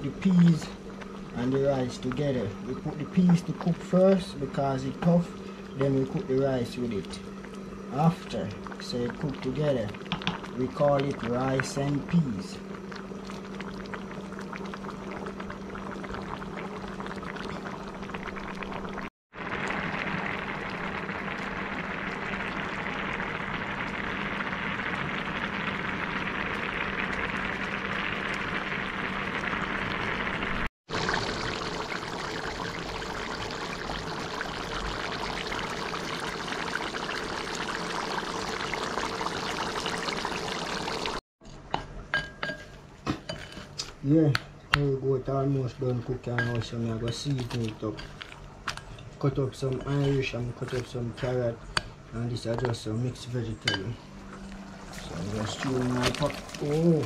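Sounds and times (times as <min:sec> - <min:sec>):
low steady hum: 0:00.0 - 0:19.0
pots boiling and bubbling: 0:00.0 - 0:57.0.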